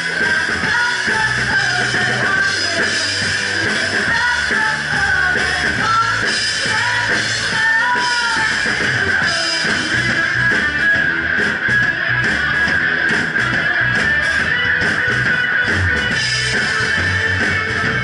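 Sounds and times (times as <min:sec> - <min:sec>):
distorted electric guitar: 0:00.0 - 0:18.0
drum kit: 0:00.0 - 0:18.0
woman singing: 0:00.2 - 0:10.2.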